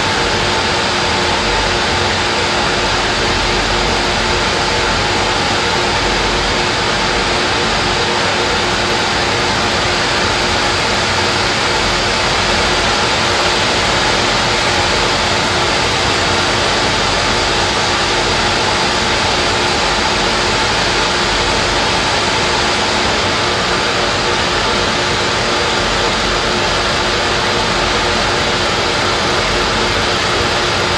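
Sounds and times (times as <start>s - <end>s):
small engine mechanical hum: 0.0s - 30.9s.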